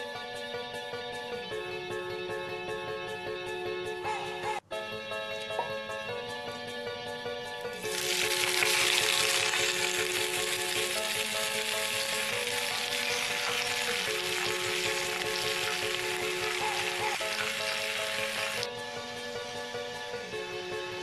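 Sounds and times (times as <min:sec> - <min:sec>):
background music: 0:00.0 - 0:21.0
leaves sizzling in a hot pan: 0:07.8 - 0:18.7.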